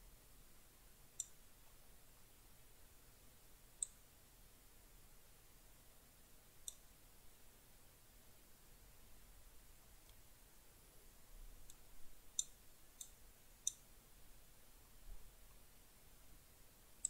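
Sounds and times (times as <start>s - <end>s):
computer mouse clicks: 12.4s - 13.8s.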